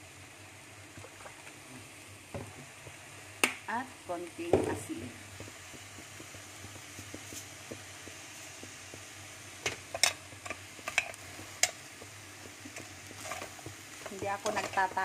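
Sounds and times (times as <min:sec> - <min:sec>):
food sizzling in a pot: 0:00.0 - 0:15.0.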